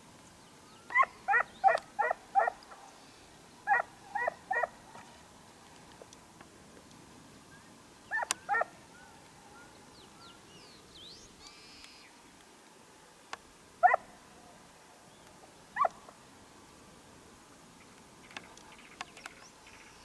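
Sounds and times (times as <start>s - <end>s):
dogs barking: 0.9s - 2.9s, 3.7s - 5.0s, 8.1s - 9.7s, 13.8s - 14.1s.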